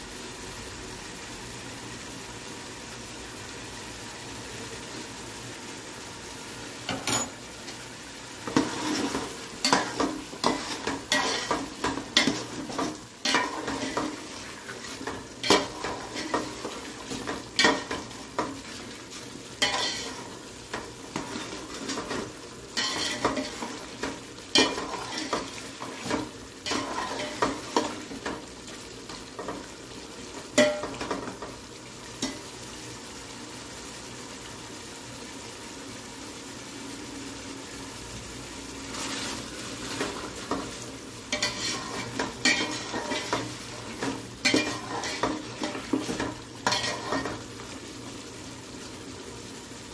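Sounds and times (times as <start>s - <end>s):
curry sizzling: 0.0s - 49.9s
spatula scraping metal pot: 8.5s - 14.3s, 22.8s - 23.8s, 41.4s - 47.4s.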